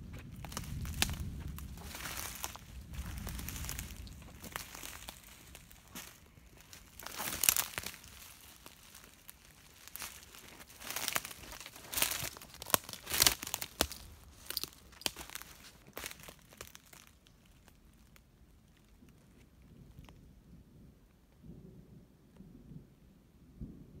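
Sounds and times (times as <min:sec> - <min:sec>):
footsteps crunching dry leaves: 0:00.0 - 0:18.1.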